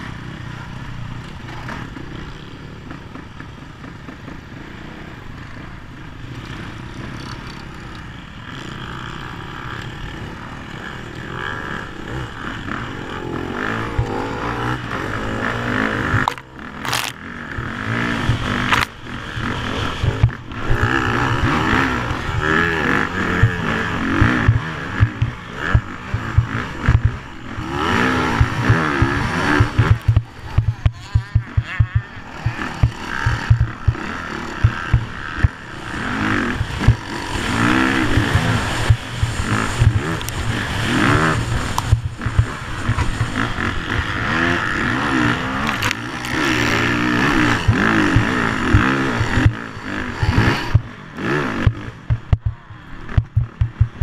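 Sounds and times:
motocross bike engine revving: 0.0s - 54.0s
bike thumping over bumps: 28.3s - 35.6s, 51.6s - 54.0s.

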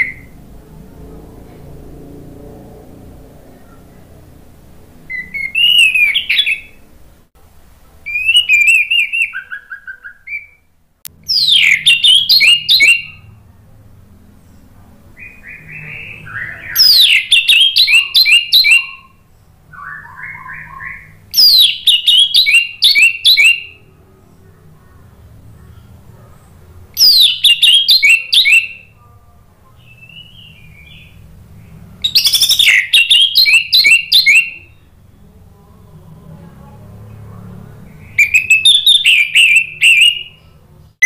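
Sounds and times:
thrush singing: 11.1s - 41.0s.

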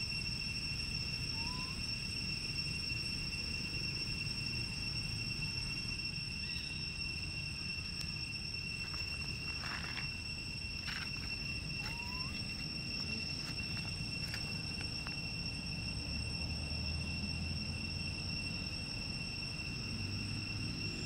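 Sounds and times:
high-pitched insect drone: 0.0s - 21.0s
short rising chirp: 11.4s - 12.8s.

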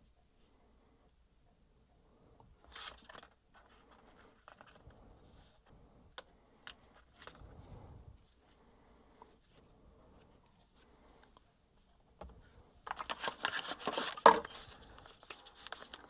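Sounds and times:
hands handling camera: 2.6s - 5.0s, 12.2s - 16.0s.

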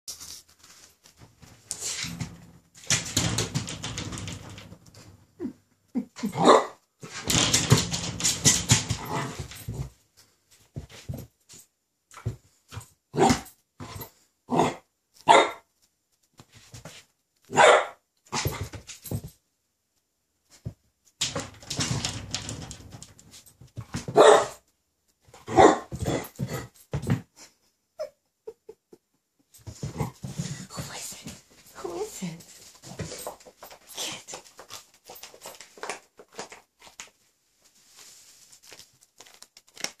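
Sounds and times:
puppy barking: 6.4s - 6.8s, 14.6s - 15.6s, 17.5s - 18.0s, 24.2s - 24.6s, 25.5s - 25.9s
bag crinkling rustles: 37.9s - 40.0s.

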